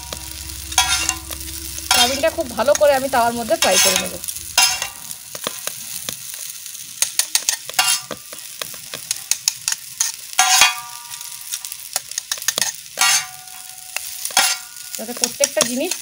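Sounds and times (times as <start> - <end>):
utensil scraping metal pan: 0.0 - 5.7, 7.2 - 8.2, 9.1 - 11.0, 12.1 - 16.0
food sizzling in oil: 0.0 - 16.0.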